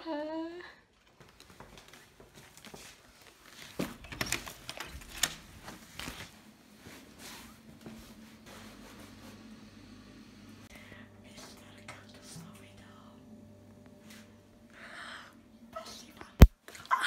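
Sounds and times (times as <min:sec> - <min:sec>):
faint low hum: 0:04.0 - 0:17.0.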